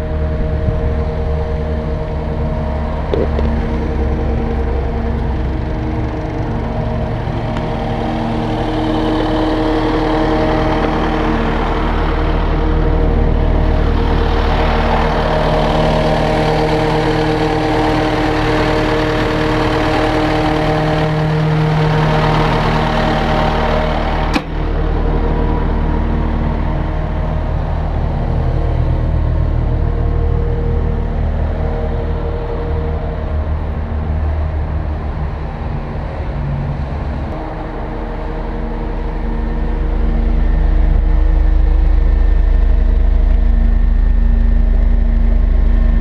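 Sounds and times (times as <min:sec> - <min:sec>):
diesel engine idling: 0:00.0 - 0:46.0
sharp click: 0:24.3 - 0:24.6.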